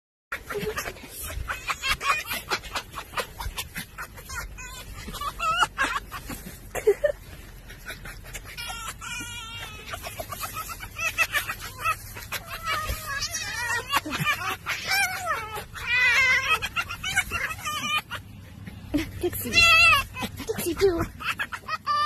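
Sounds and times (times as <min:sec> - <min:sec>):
foxes chattering and cackling: 0:00.3 - 0:22.0
fox whining calls: 0:00.4 - 0:06.6, 0:07.8 - 0:18.6, 0:19.3 - 0:22.0.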